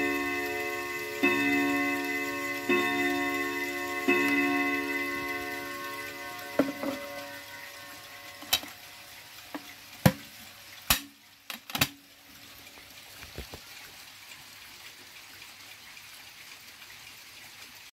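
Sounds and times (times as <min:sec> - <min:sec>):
faint steady hiss: 0:00.0 - 0:17.9.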